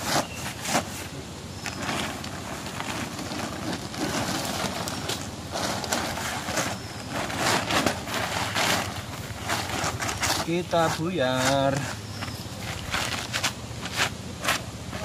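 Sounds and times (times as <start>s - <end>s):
plastic tarpaulin rustling: 0.0s - 15.0s.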